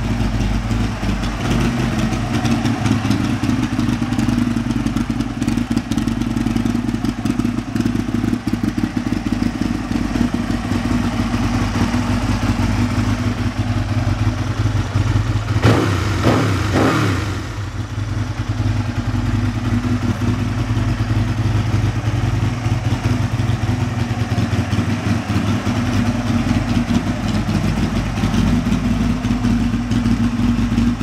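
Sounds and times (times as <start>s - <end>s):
motorcycle engine revving and idling: 0.0s - 31.0s.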